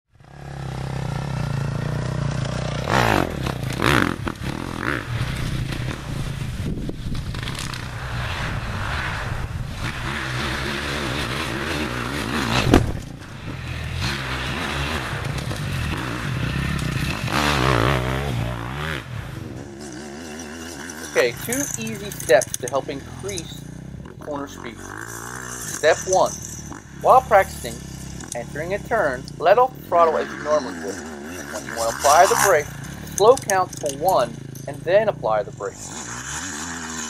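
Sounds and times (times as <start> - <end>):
dirt bike engine revving: 0.1 - 37.0
sharp thump: 12.4 - 13.5.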